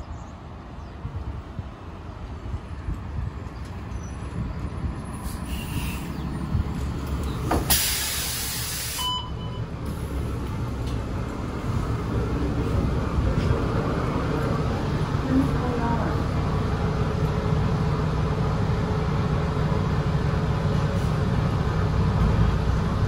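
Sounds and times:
bus engine idling: 0:00.0 - 0:23.0
compressed air hiss: 0:05.2 - 0:06.2, 0:07.6 - 0:09.1
short beep: 0:08.9 - 0:09.7.

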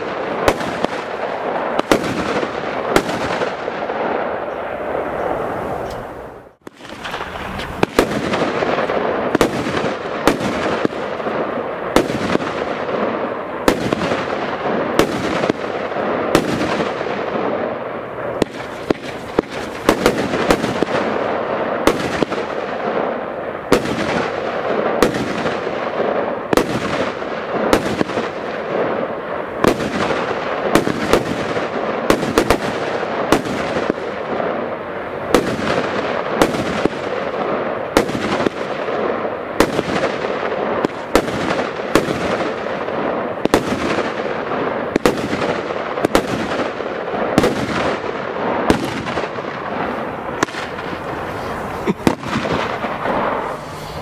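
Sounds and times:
firework shots banging: 0:00.0 - 0:54.0
hiss and crackle of rising shots: 0:00.0 - 0:54.0.

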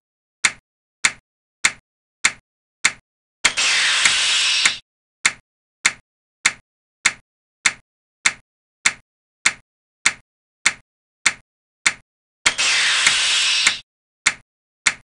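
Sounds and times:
sharp clicks: 0:00.4 - 0:15.0
burst of hiss: 0:03.6 - 0:04.8, 0:12.5 - 0:13.8.

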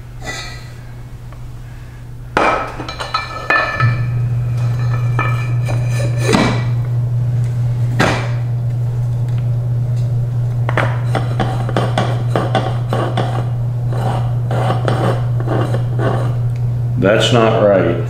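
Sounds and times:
steady low hum: 0:00.0 - 0:18.0
metal tools knocking and clinking: 0:02.8 - 0:04.0.

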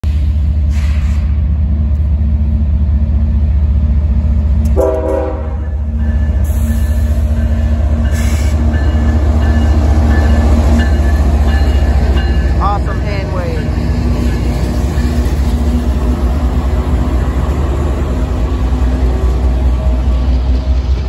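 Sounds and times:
diesel locomotive engine rumble: 0:00.0 - 0:21.0
train horn: 0:04.7 - 0:05.7.

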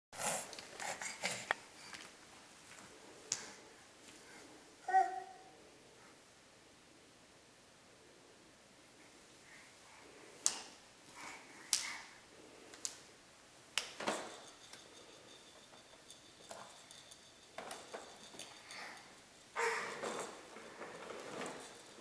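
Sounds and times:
plastic toy walker clattering: 0:15.7 - 0:18.7, 0:19.6 - 0:22.0.

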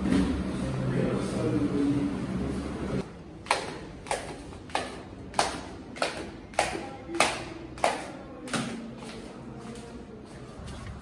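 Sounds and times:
footsteps on tiled stairs: 0:03.5 - 0:11.0.

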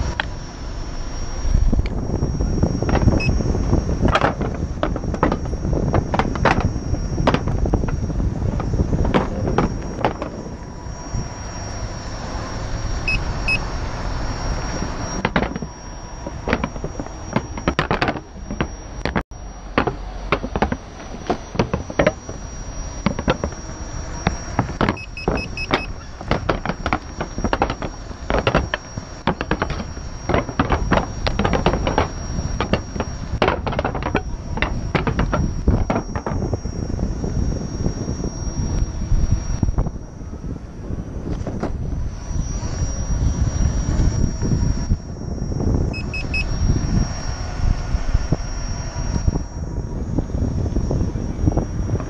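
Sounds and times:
faint high whine: 0:00.0 - 0:52.0
wheel clicking over paving joints: 0:02.8 - 0:10.6, 0:14.6 - 0:36.6.

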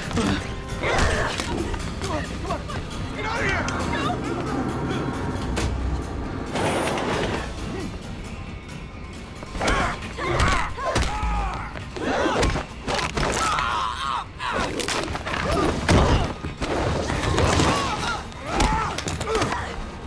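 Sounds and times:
fighters shouting and grunting: 0:00.0 - 0:04.8, 0:09.5 - 0:20.0.

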